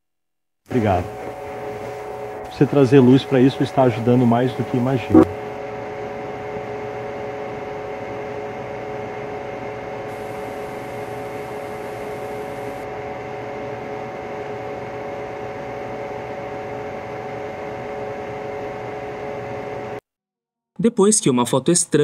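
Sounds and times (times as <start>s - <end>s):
static hiss: 0.7s - 5.6s, 10.1s - 12.9s
droning held tones: 10.1s - 12.8s.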